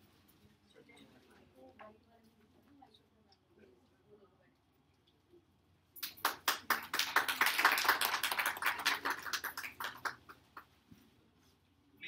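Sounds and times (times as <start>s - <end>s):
people clapping: 6.0s - 10.7s.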